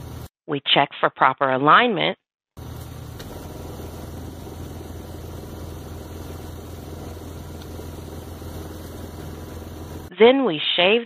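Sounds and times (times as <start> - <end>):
engine idling: 2.6 - 10.1.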